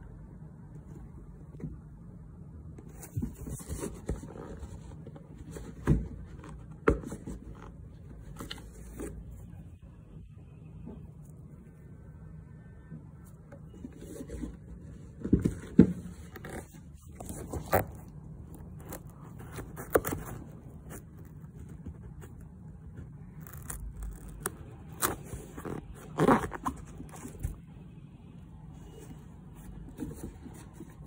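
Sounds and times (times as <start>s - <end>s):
fingers handling shoe: 2.7s - 9.5s, 13.4s - 27.7s, 28.9s - 31.0s.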